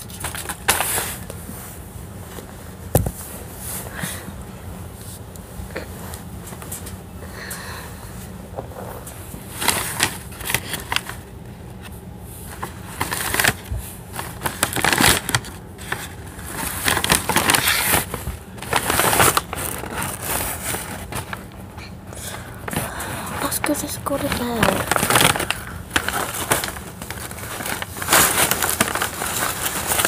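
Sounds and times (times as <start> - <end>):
bedding rustling: 0.1 - 5.3, 12.2 - 30.0.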